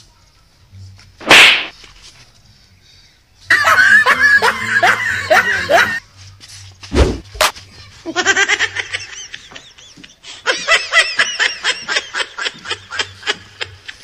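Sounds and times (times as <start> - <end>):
person laughing: 3.5 - 6.0.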